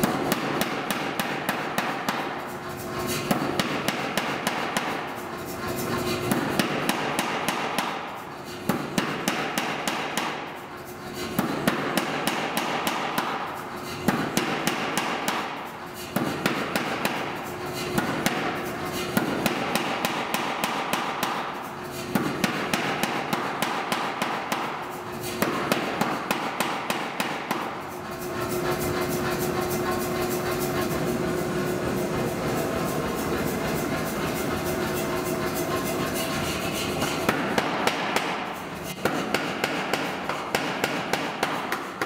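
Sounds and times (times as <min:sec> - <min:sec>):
power hammer striking hot steel: 0:00.0 - 0:05.3, 0:06.2 - 0:29.4, 0:32.9 - 0:42.0
machine humming: 0:27.8 - 0:37.4.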